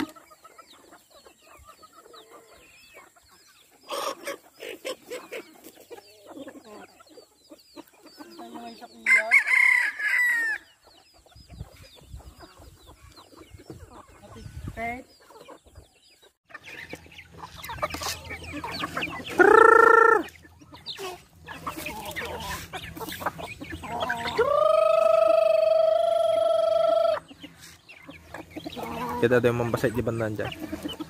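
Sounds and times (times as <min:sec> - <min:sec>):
chickens clucking: 0:00.0 - 0:31.0
chicks cheeping: 0:00.0 - 0:31.0
rooster crowing: 0:09.1 - 0:10.6.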